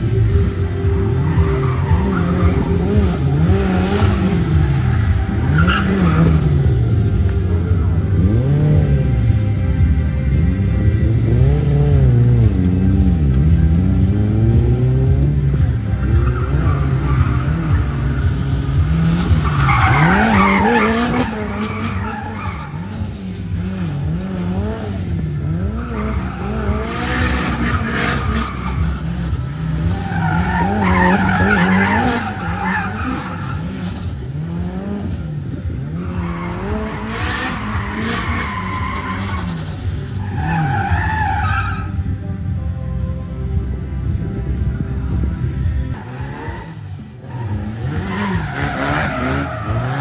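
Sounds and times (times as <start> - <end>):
car engine revving: 0.0 - 50.0
tyres squealing: 16.0 - 24.7, 25.6 - 34.6.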